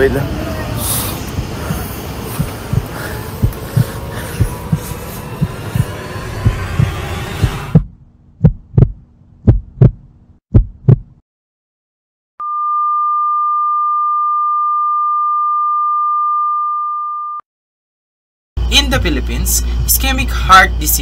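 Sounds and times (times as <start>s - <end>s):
heartbeat thumps: 1.2s - 11.2s.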